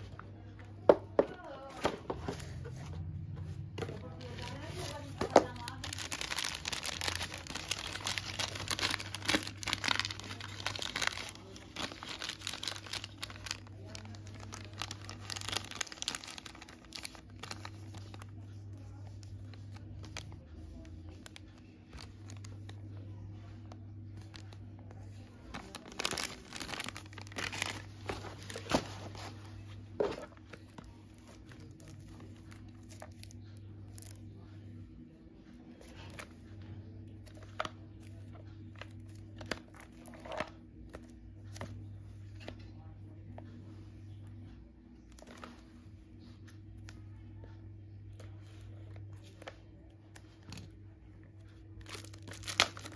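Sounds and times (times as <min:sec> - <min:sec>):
steady low hum: 0:00.0 - 0:52.9
paper rustling and crinkling: 0:01.6 - 0:22.8, 0:23.4 - 0:34.2, 0:51.8 - 0:52.9.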